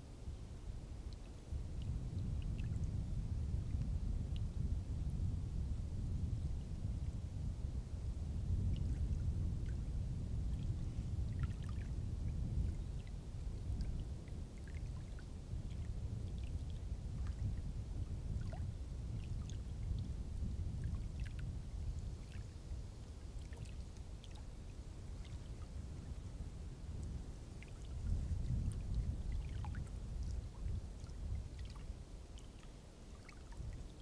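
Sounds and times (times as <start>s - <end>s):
faint ticks: 3.7s - 4.5s.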